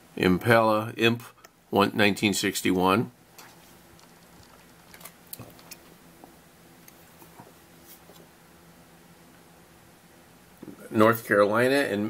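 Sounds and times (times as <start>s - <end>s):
soft plastic rustles: 3.3s - 6.4s.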